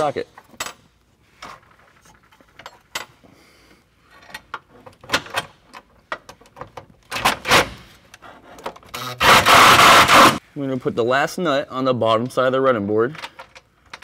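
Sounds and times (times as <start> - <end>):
cordless drill running: 9.0 - 10.4.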